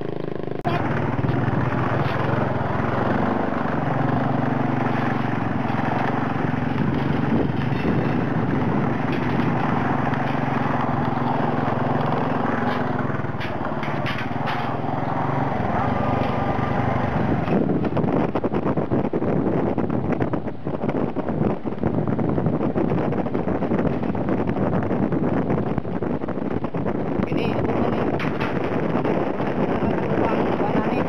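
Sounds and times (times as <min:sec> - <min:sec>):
small motorcycle engine running: 0:00.0 - 0:31.0
clicks and knocks: 0:00.6 - 0:18.0.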